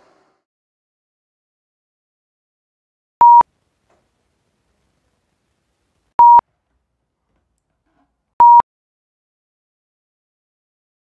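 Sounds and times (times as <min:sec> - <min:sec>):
short electronic beeps: 0:03.2 - 0:03.4, 0:06.2 - 0:06.4, 0:08.4 - 0:08.6.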